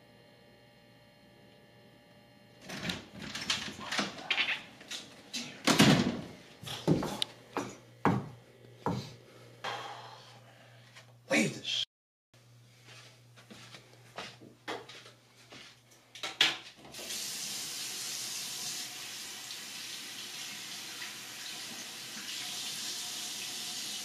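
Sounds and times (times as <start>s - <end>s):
faint electrical hum: 0.1s - 11.8s, 12.4s - 23.7s
interior door opening: 2.6s - 7.2s.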